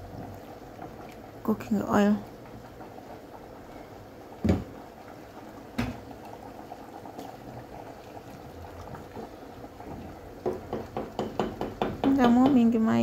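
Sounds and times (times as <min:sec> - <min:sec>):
rice and water boiling in a pot: 0:00.0 - 0:13.0
knock: 0:04.4 - 0:04.7, 0:10.4 - 0:12.6.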